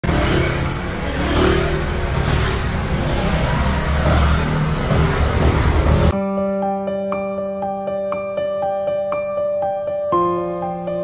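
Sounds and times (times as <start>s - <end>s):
motorbike engines humming: 0.0s - 6.2s
steady rushing noise: 0.0s - 6.2s.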